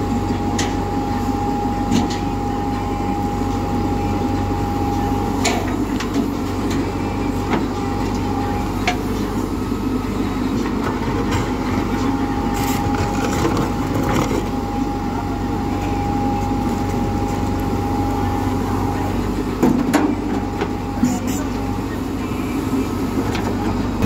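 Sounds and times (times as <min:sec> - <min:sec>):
thin steady whine: 0:00.0 - 0:13.1
diesel engine running under load: 0:00.0 - 0:24.0.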